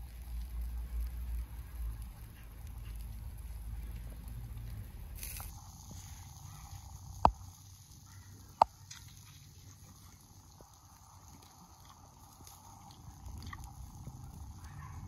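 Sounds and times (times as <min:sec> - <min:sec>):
faint outdoor background: 0:00.0 - 0:15.0.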